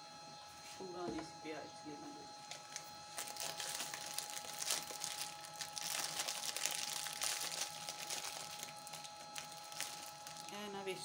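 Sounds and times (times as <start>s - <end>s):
crinkling and rustling: 2.4s - 10.6s.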